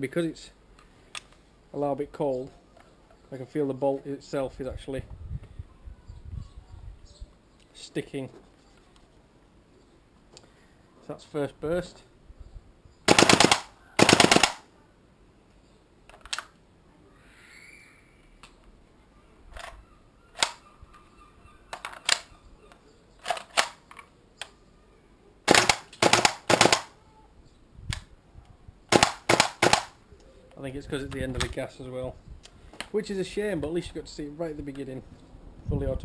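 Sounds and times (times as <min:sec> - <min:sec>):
airsoft rifle single shots: 0:13.1 - 0:14.6, 0:25.5 - 0:26.9, 0:28.9 - 0:30.0
airsoft rifle firing bursts: 0:13.1 - 0:14.7, 0:25.5 - 0:26.9, 0:28.9 - 0:30.0.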